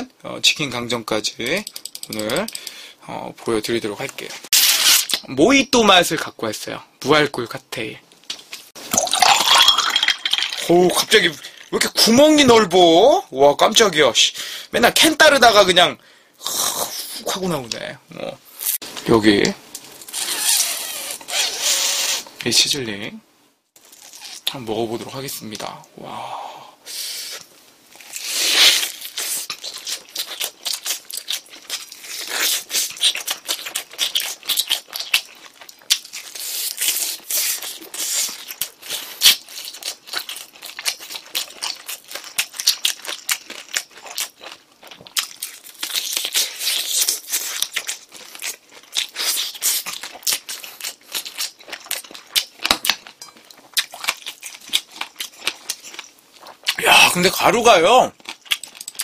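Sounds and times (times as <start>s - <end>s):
crunchy chewing: 27.9s - 56.8s, 58.1s - 59.0s.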